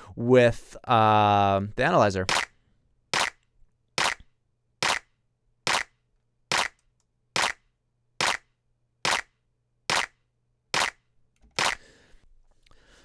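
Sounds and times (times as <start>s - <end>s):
electronic clap snaps: 3.2s - 5.1s, 5.7s - 10.2s, 10.8s - 11.0s.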